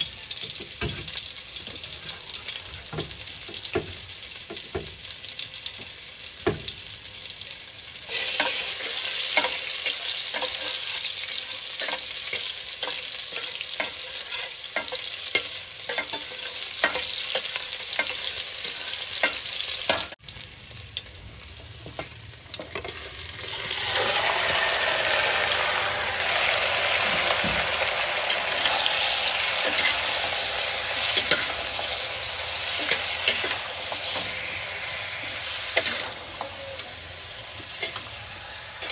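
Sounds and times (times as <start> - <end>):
chicken frying: 0.0 - 38.9
onion and garlic sizzling in oil: 0.0 - 38.9
metal spatula scraping a pot: 11.8 - 19.4, 37.6 - 38.9.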